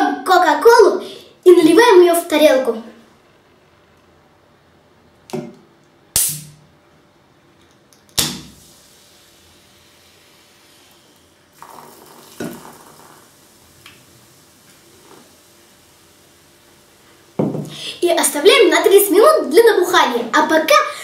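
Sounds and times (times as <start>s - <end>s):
soda fizzing: 8.4s - 17.6s.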